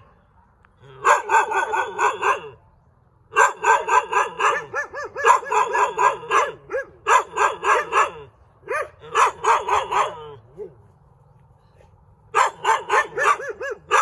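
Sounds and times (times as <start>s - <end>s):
dog barking rapidly: 1.0s - 2.6s, 3.3s - 10.7s, 12.3s - 14.0s.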